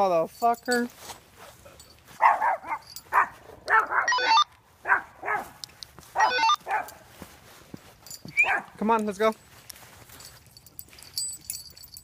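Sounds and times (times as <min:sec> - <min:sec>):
dog barking: 0:02.2 - 0:05.6, 0:06.2 - 0:07.1, 0:08.4 - 0:08.8.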